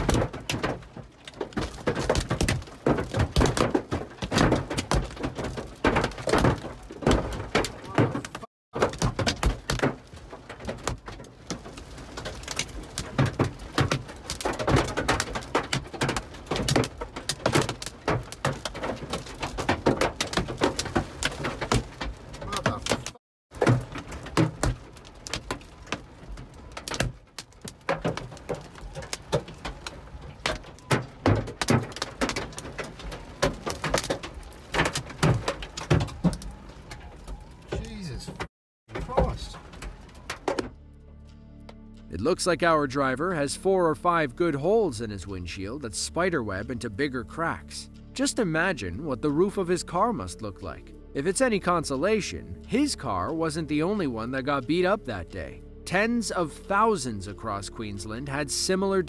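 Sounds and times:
hail pounding car roof: 0.0 - 40.7.

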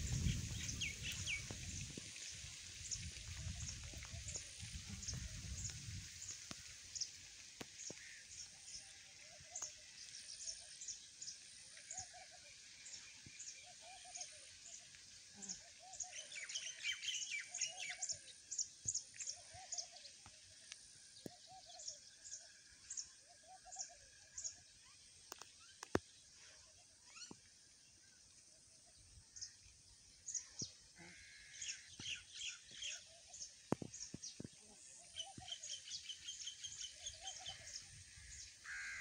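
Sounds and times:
lower bird call: 34.8 - 39.0.

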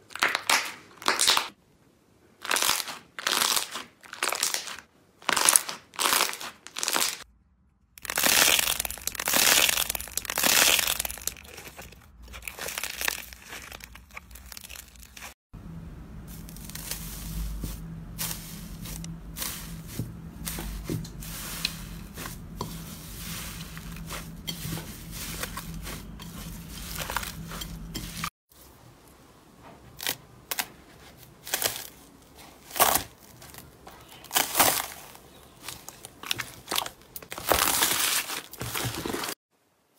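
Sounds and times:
foil crinkling: 2.4 - 7.2, 8.0 - 15.4, 16.2 - 28.3, 31.3 - 39.4
foam-bead slime crunches: 2.4 - 7.3, 8.0 - 15.4, 16.1 - 28.3, 30.0 - 39.4
slime squishing and popping: 8.0 - 15.3
faint low hum: 15.6 - 28.0.

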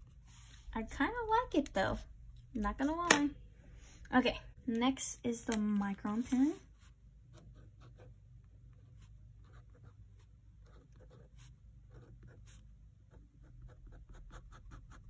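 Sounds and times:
pen scratching on paper: 6.8 - 15.0.

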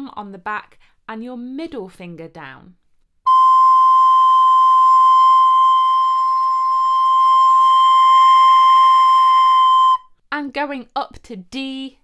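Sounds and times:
recorder playing long high note: 3.3 - 10.0.

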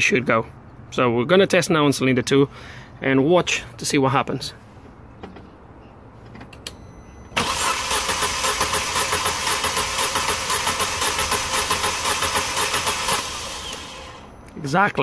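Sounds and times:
starter motor cranking engine: 7.4 - 14.2.

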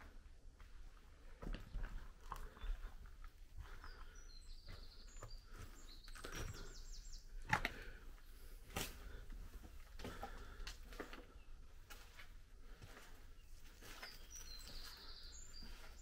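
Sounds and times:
slow footsteps: 0.0 - 16.0
bird chirps: 3.6 - 8.4, 13.3 - 16.0.

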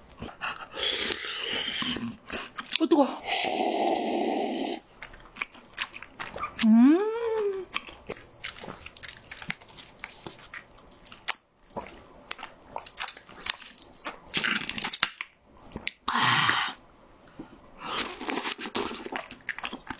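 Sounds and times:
person chewing and crunching food: 0.1 - 2.8, 4.8 - 16.8, 17.4 - 19.9
juice sucked through a straw: 3.2 - 4.9.

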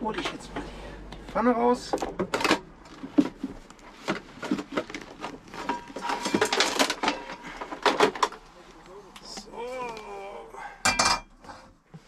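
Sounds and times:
plastic dishes clattering in drawer: 2.0 - 8.4.

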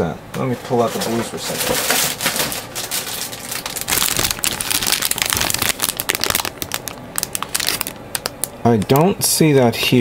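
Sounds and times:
plastic bag crinkling: 1.5 - 9.0.

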